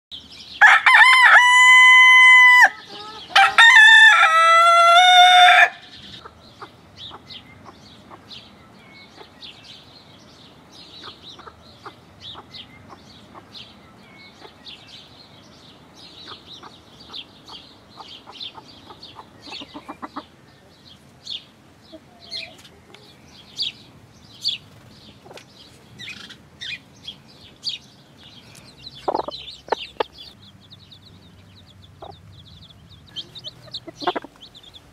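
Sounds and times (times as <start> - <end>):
rooster crowing: 0.6 - 5.9
hens clucking and peeping: 1.0 - 15.1, 16.0 - 34.9.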